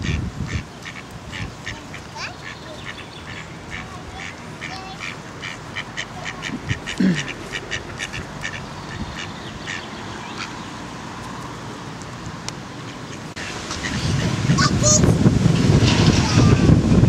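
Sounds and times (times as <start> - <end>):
ducks quacking: 0.0 - 10.7, 12.8 - 15.0.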